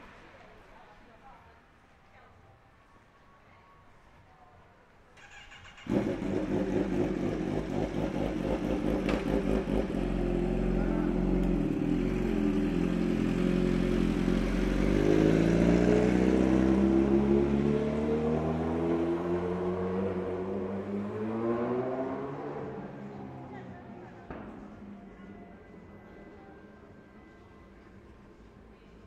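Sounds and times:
vehicle engine running: 5.9s - 17.2s.

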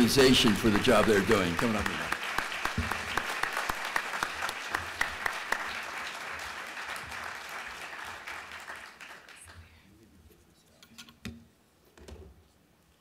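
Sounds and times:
audience applauding: 0.0s - 9.8s.

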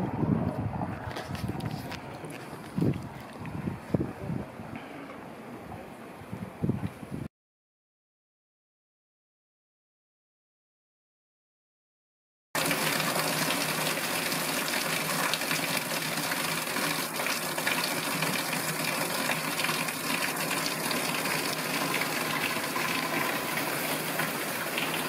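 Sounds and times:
heavy rain: 12.6s - 25.0s
runoff splashing on tiles: 12.6s - 25.0s.

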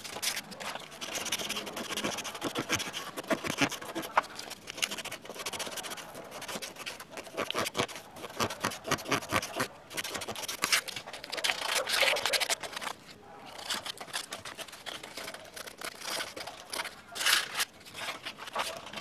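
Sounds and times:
gouge scraping wood: 0.0s - 12.9s.

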